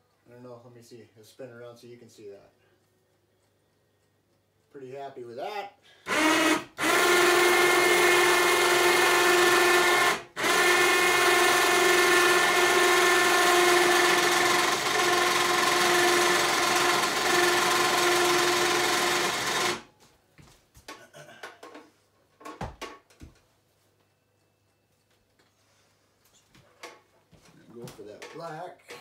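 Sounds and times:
winch motor whining: 6.1s - 19.8s.

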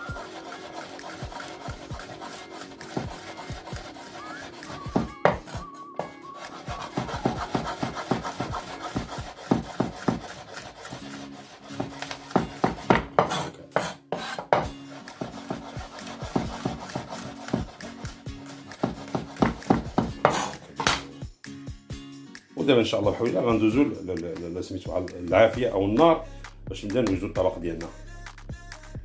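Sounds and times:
knife chopping on wooden board: 0.2s - 17.8s, 18.7s - 21.1s.

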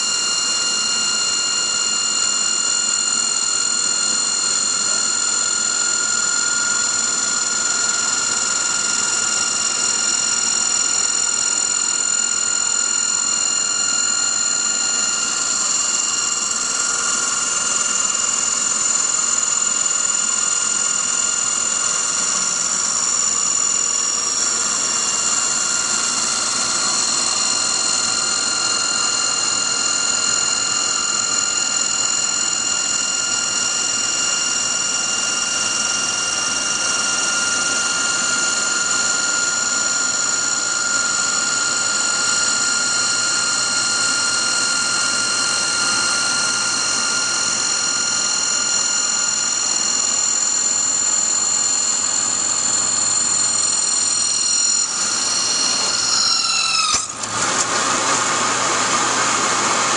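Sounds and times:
saw blade cutting wood: 55.0s - 57.9s.

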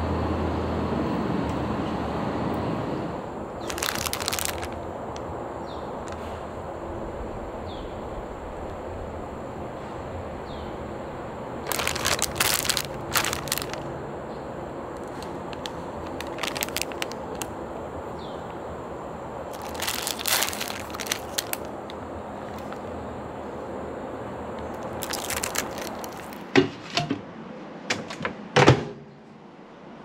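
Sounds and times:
plastic packaging crinkling: 3.6s - 5.3s, 6.0s - 6.4s, 11.6s - 13.9s, 14.9s - 17.6s, 19.4s - 23.0s, 24.6s - 26.5s.

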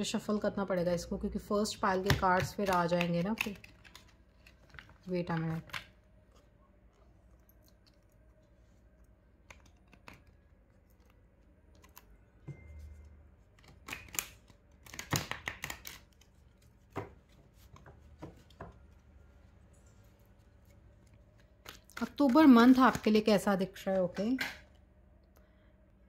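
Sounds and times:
cards shuffled by hand: 13.6s - 19.0s.

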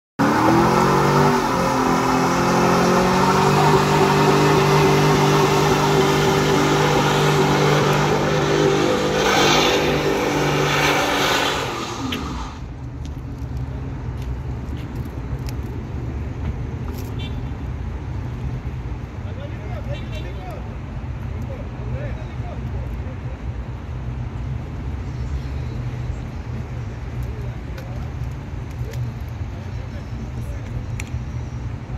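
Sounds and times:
truck engine revving: 0.2s - 12.6s
tyres screeching: 0.2s - 12.6s.

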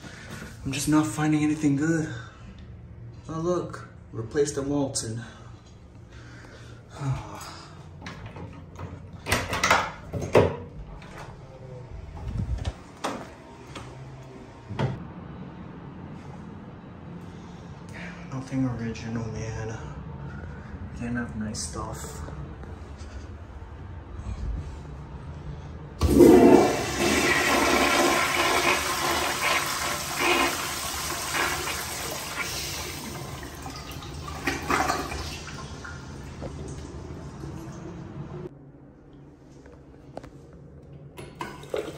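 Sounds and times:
toilet flushing: 26.0s - 38.0s, 41.2s - 41.9s.

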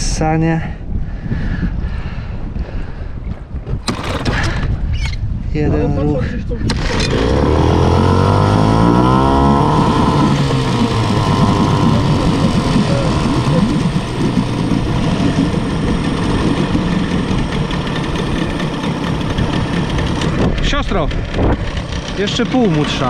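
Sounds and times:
outboard motor revving: 3.9s - 4.6s, 6.6s - 23.0s.

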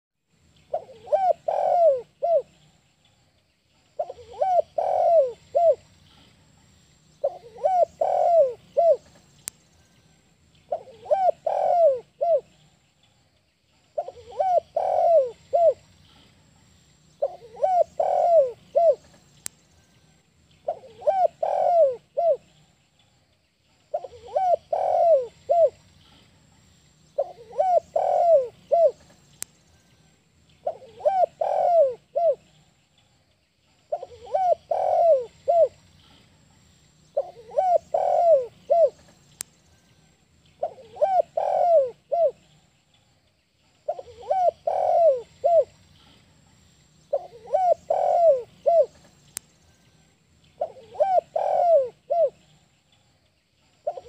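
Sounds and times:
dove cooing: 0.7s - 2.6s, 4.0s - 6.2s, 7.2s - 9.2s, 10.7s - 12.6s, 14.0s - 15.9s, 17.2s - 19.2s, 20.6s - 22.5s, 23.9s - 25.8s, 27.2s - 29.1s, 30.6s - 32.6s, 33.9s - 36.2s, 37.2s - 39.1s, 40.6s - 42.5s, 43.9s - 46.1s, 47.1s - 49.1s, 50.6s - 52.6s.

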